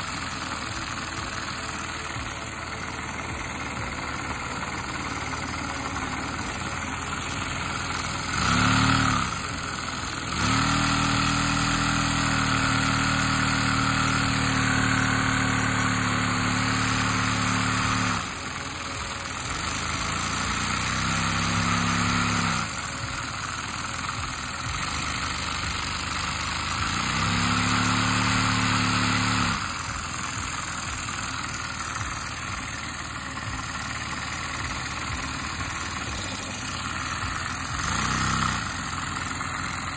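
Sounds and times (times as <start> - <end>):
vacuum engine running: 28.2 - 39.9.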